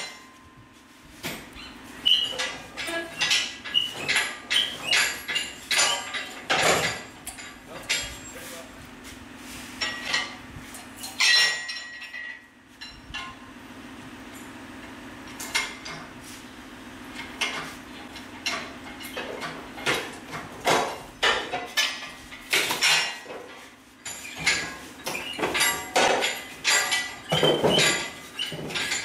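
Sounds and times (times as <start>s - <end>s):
metallic clinks and clanks: 0.0s - 0.6s, 1.3s - 8.6s, 9.8s - 13.4s, 17.1s - 29.0s.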